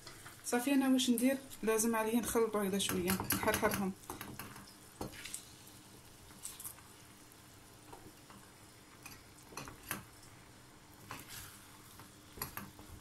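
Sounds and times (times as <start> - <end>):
spatula scraping a frying pan: 11.0 - 12.5.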